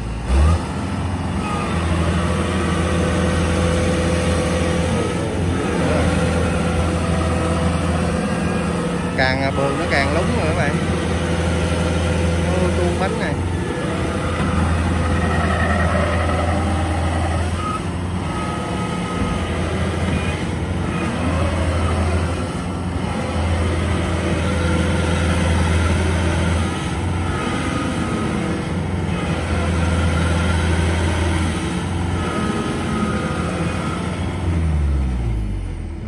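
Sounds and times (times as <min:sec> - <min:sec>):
diesel engine working hard: 0:00.0 - 0:36.0
high mechanical whine: 0:12.5 - 0:20.5.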